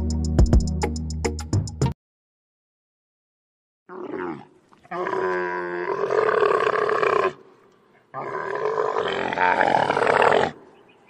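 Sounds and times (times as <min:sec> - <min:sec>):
camel calls: 0:08.1 - 0:11.0.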